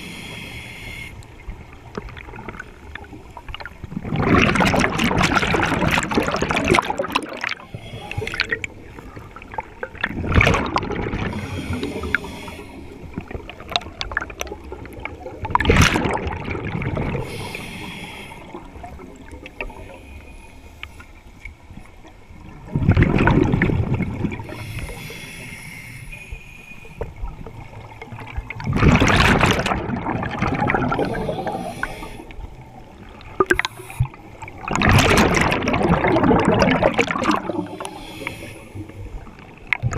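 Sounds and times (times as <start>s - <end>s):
regulator inhale hiss: 0.0s - 1.4s, 7.6s - 8.6s, 11.3s - 13.2s, 17.2s - 21.5s, 24.4s - 27.2s, 30.9s - 32.9s, 33.6s - 34.4s, 37.5s - 39.3s
exhaled bubbles gurgling underwater: 0.0s - 25.8s, 26.8s - 39.9s.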